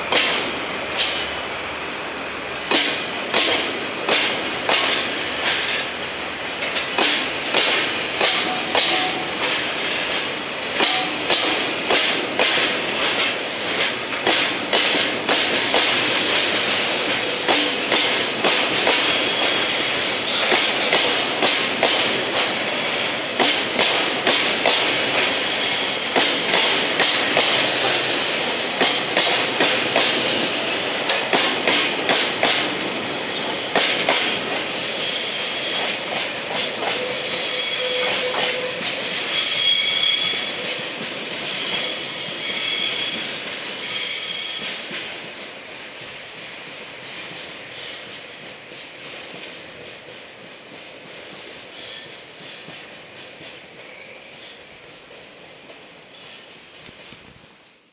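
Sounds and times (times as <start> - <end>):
train wheels clacking over rail joints: 0.1 - 1.2, 2.6 - 5.9, 6.6 - 57.3
high wheel squeals: 1.3 - 12.0, 36.8 - 40.6, 41.4 - 44.7.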